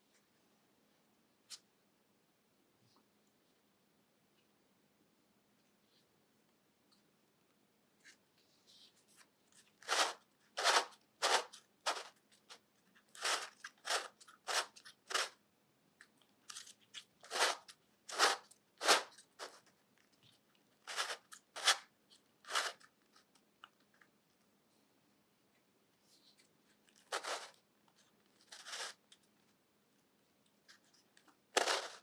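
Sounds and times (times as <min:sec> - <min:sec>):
plastic puzzle pieces scraping: 0:09.5 - 0:15.4, 0:16.4 - 0:19.8, 0:20.8 - 0:23.4, 0:26.3 - 0:29.2, 0:30.7 - 0:32.0.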